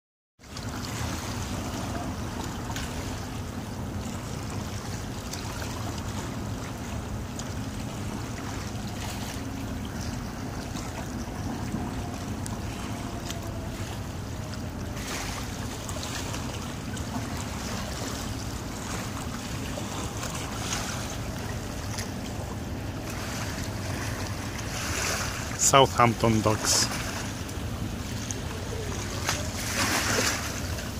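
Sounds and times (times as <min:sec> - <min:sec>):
small waves lapping: 0:00.4 - 0:30.9
low steady drone: 0:01.4 - 0:24.8.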